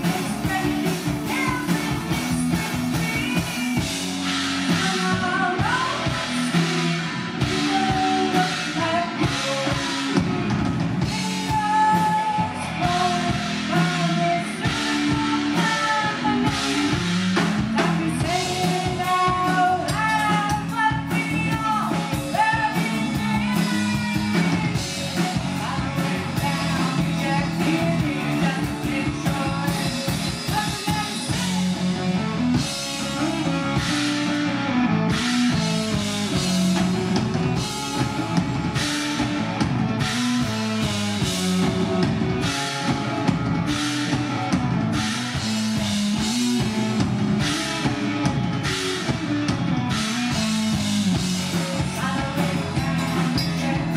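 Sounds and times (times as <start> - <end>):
woman singing: 0.0 - 4.0, 4.6 - 10.4, 11.0 - 17.0, 17.8 - 31.9, 51.6 - 53.9
drum kit: 0.0 - 53.9
electric bass: 0.0 - 53.9
electric guitar: 0.0 - 53.9.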